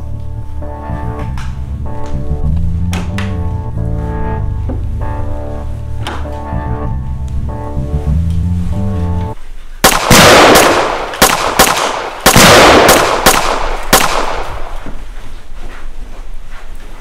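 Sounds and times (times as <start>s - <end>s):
gunshots with echo: 9.8s - 14.8s.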